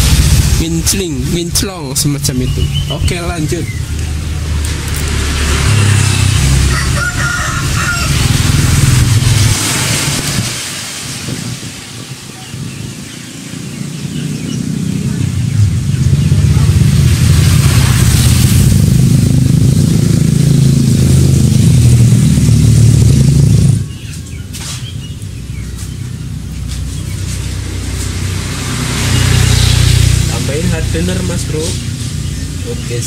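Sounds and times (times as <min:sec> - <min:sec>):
motor deep uneven hum: 0:12.9 - 0:33.0.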